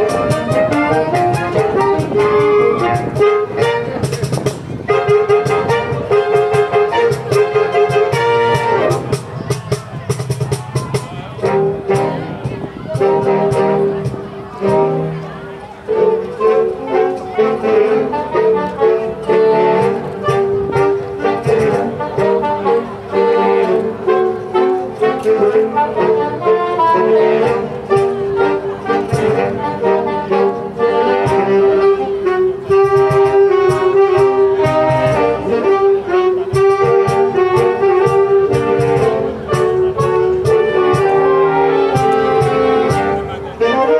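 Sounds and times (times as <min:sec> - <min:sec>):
saxophones playing in harmony: 0:00.0 - 0:43.9
percussion beat: 0:08.1 - 0:14.8.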